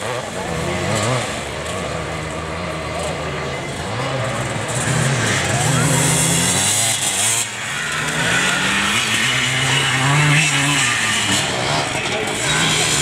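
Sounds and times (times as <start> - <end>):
off-road motorcycle engine: 0.0 - 13.0.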